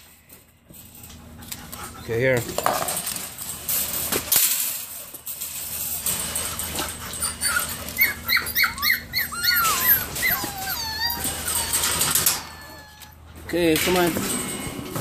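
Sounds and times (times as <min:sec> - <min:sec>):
puppies whining and yelping: 0:06.1 - 0:13.4.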